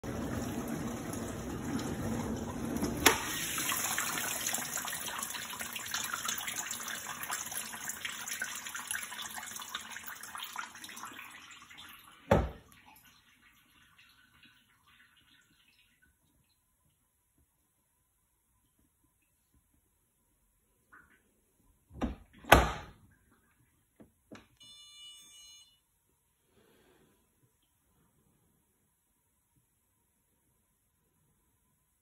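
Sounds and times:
dishwasher door thump: 12.3s - 12.6s, 22.0s - 22.9s.

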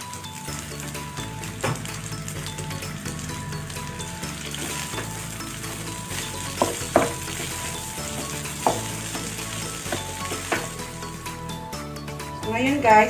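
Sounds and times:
rice sizzling in oil: 0.0s - 11.4s
wooden spatula knocking pan: 6.2s - 11.0s.

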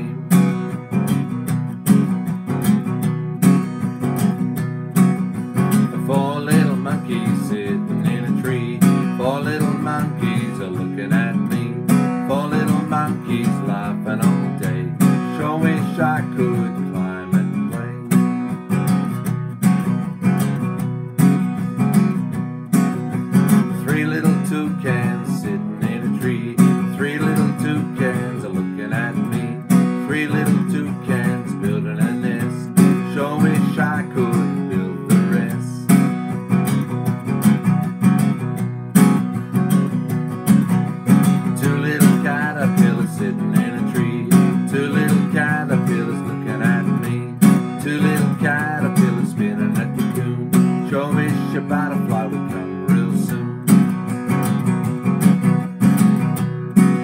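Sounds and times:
man singing: 0.0s - 1.0s, 5.5s - 18.6s, 23.5s - 36.1s, 41.1s - 54.1s
acoustic guitar strumming: 0.0s - 57.0s.

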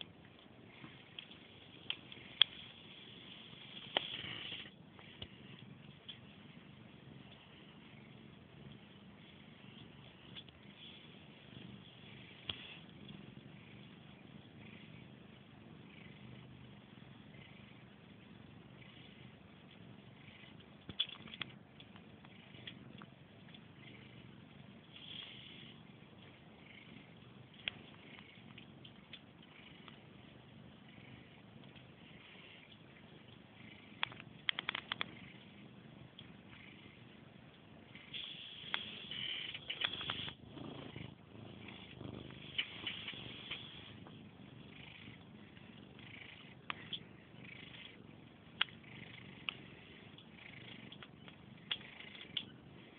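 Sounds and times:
cats purring: 0.0s - 52.9s
sharp clicks: 20.8s - 23.6s, 34.0s - 35.2s, 38.1s - 40.4s, 50.9s - 52.5s.

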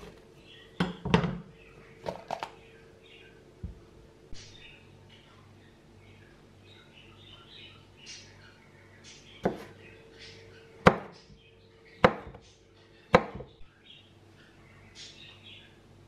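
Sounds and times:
knife chopping on cutting board: 9.4s - 9.7s, 10.8s - 11.1s, 12.0s - 12.4s, 13.1s - 13.5s.

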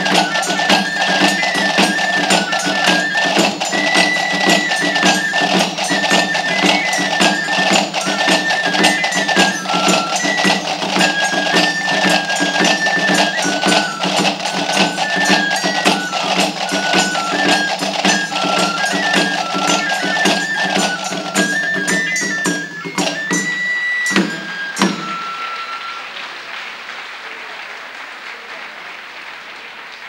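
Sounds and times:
steady drum beat: 0.0s - 25.6s
high cane flute melody: 0.0s - 26.2s.

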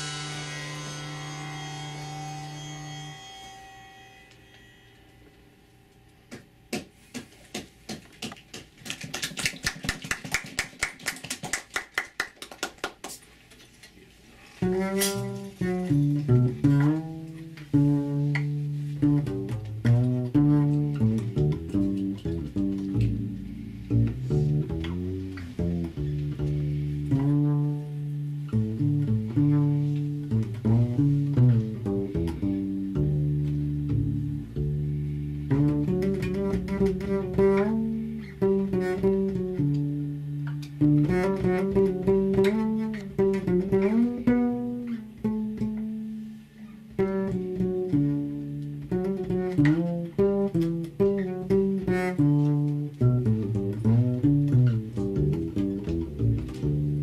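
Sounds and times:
drum kit played lightly: 0.0s - 3.6s
plucked deep bass notes: 0.0s - 3.6s, 14.6s - 46.2s, 46.9s - 57.0s
mandocello: 0.0s - 6.9s, 13.7s - 57.0s.

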